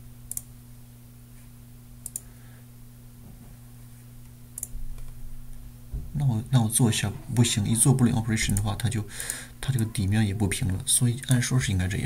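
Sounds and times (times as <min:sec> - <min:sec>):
steady low hum: 0:00.0 - 0:12.0
computer mouse clicks: 0:00.3 - 0:00.5, 0:02.0 - 0:02.3, 0:04.6 - 0:05.2.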